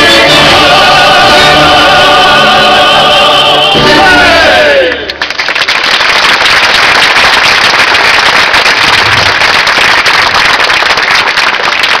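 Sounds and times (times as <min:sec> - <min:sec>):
crowd applauding: 0:04.8 - 0:12.0.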